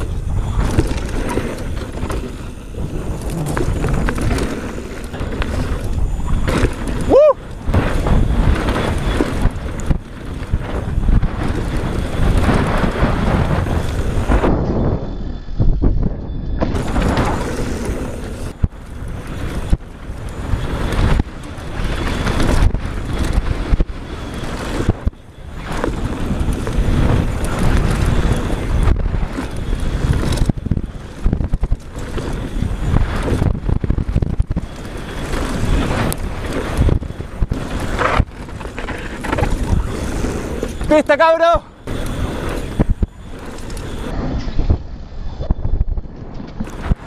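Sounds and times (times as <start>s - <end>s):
bike knocks and rattles: 0.0s - 14.9s, 15.7s - 41.0s
tyres rolling over dirt trail: 0.0s - 47.0s
wind buffeting microphone: 0.0s - 47.0s.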